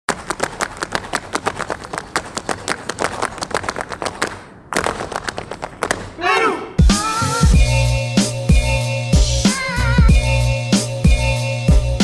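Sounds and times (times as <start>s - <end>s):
dancers clapping in rhythm: 0.1s - 6.2s.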